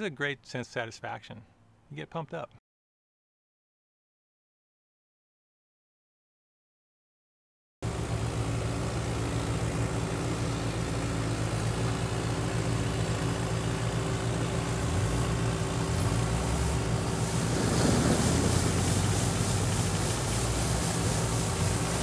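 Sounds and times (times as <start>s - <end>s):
harvester engine running: 7.9s - 22.0s.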